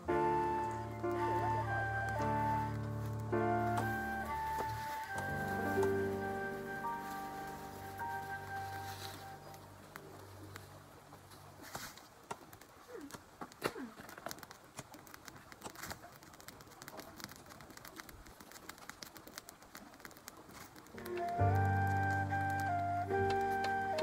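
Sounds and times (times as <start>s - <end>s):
bird calling with low falling notes: 0.0s - 11.2s, 21.0s - 24.0s
dry twigs snapping and crackling: 0.0s - 24.0s.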